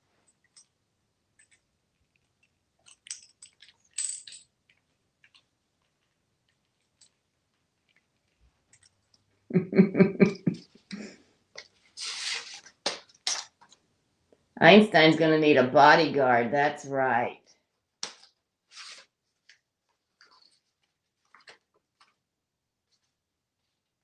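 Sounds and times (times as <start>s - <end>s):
coins clinking on countertop: 2.8s - 4.5s.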